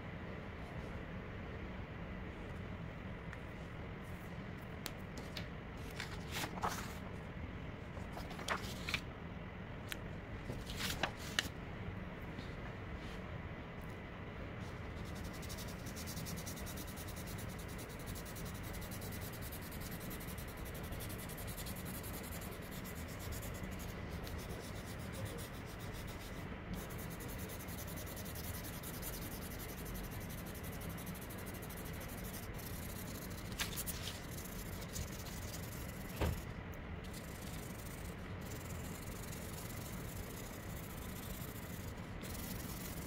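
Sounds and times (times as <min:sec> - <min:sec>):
pencil rubbing on paper: 0:15.0 - 0:36.4, 0:37.1 - 0:43.0.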